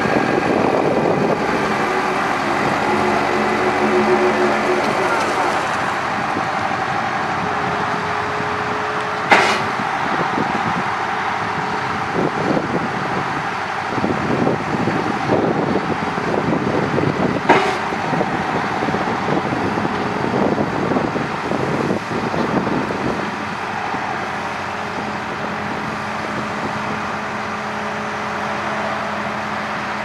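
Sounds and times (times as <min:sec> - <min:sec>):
diesel engine under load: 0:00.0 - 0:30.0
hydraulic whine: 0:00.0 - 0:30.0
lower whine: 0:00.0 - 0:30.0
sharp knocks: 0:09.3 - 0:09.8, 0:17.5 - 0:18.0.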